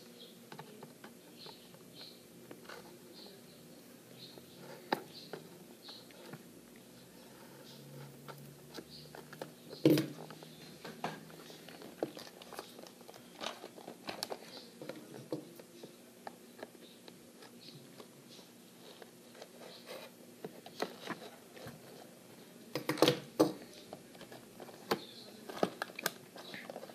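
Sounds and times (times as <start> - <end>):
packaging crinkling and scraping: 11.3 - 15.1.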